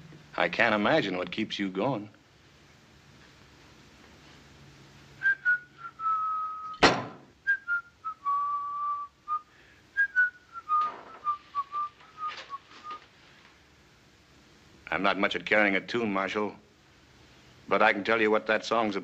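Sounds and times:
man whistling a slow tune: 0:05.2 - 0:06.8, 0:07.4 - 0:13.0
sharp knock: 0:06.8 - 0:07.3.

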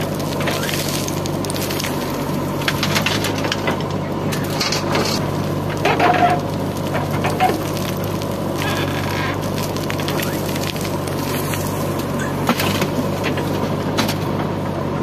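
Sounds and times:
soil and stones pouring: 0:00.0 - 0:03.7, 0:04.3 - 0:13.9
diesel engine running: 0:00.0 - 0:15.0.

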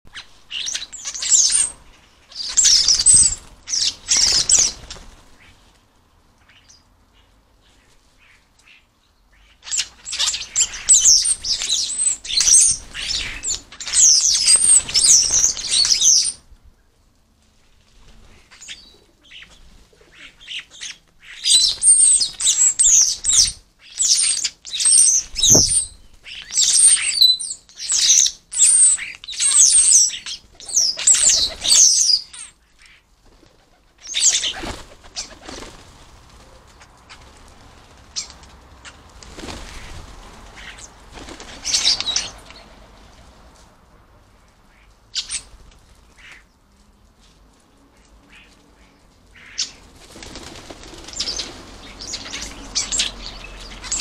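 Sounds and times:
starlings chattering and squawking: 0:00.1 - 0:05.7, 0:06.4 - 0:16.4, 0:18.2 - 0:33.1, 0:33.9 - 0:42.7, 0:44.6 - 0:46.6, 0:47.9 - 0:54.0
wing flapping: 0:01.2 - 0:05.8, 0:33.2 - 0:42.6, 0:49.6 - 0:54.0.

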